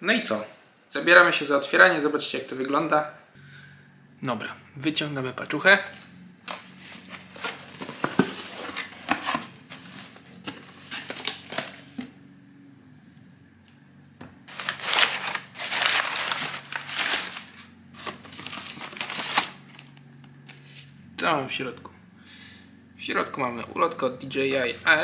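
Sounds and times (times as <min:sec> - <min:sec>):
packing paper rustling: 0:06.5 - 0:12.0, 0:14.5 - 0:20.9.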